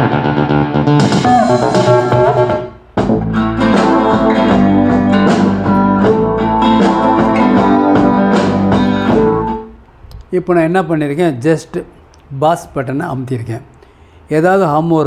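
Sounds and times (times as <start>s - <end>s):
plucked string music over speakers: 0.0s - 9.7s.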